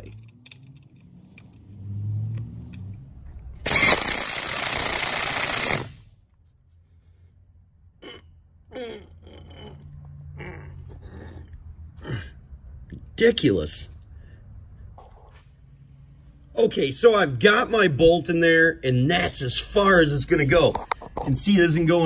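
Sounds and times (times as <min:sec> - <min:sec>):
ratcheting wrench clicks: 0:03.6 - 0:05.9
power tool driving a bolt: 0:03.6 - 0:06.0.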